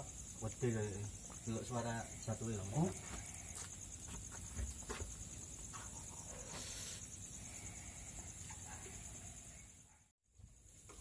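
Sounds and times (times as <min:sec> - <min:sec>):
night insects trilling: 0:00.0 - 0:11.0.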